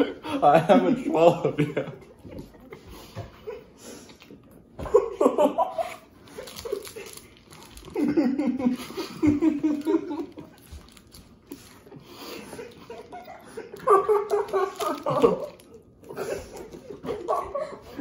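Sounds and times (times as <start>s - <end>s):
boys laughing and giggling: 0.0s - 3.8s, 4.8s - 7.2s, 7.9s - 10.6s, 12.3s - 18.0s
crackly rustling: 6.2s - 8.2s.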